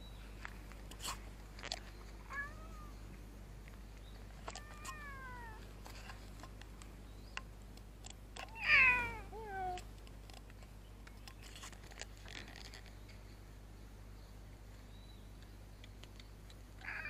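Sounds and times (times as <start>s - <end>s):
cat meowing: 2.3s - 3.0s, 4.6s - 5.6s, 8.5s - 9.8s.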